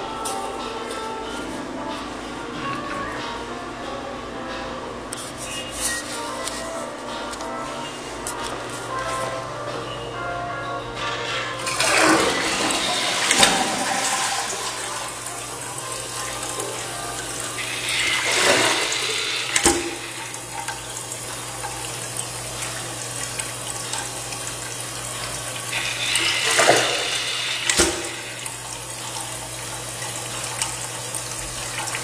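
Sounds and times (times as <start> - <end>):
toilet tank flushing and refilling: 11.6 - 32.0.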